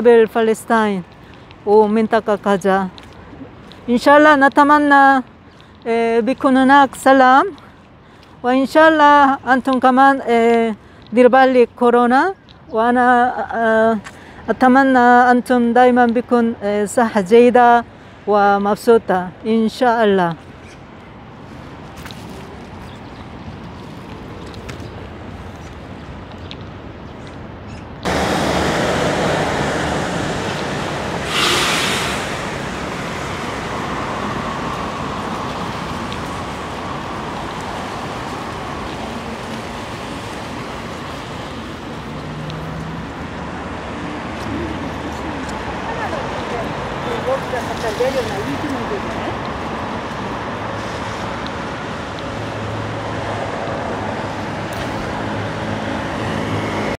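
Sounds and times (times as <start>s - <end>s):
distant traffic: 0.0s - 57.0s
rain hissing on a street: 28.1s - 56.9s
brief louder hiss: 31.2s - 32.7s.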